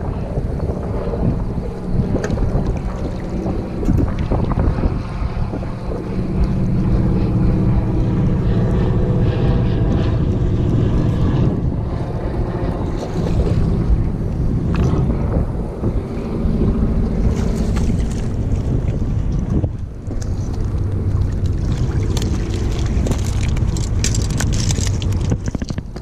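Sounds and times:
wind buffeting microphone: 0.0 - 26.0
fishing reel whirring: 20.2 - 25.8.

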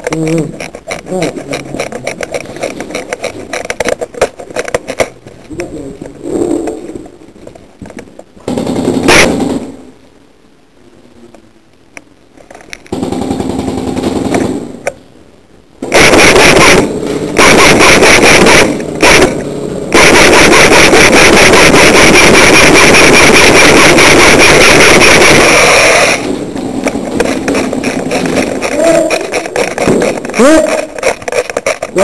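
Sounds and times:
airsoft gun full auto bursts: 8.5 - 9.7, 15.8 - 31.8.

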